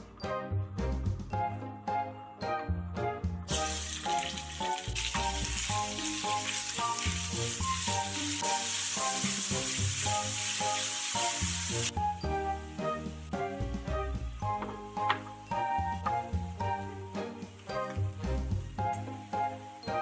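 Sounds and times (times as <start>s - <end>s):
meat sizzling in oil: 3.5s - 20.0s.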